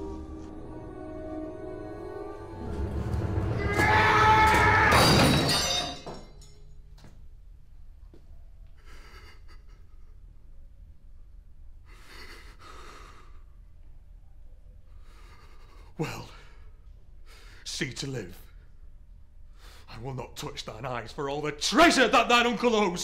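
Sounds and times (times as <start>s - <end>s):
dramatic film score: 0.0s - 5.5s
man breathing heavily: 11.8s - 13.6s, 14.9s - 17.6s.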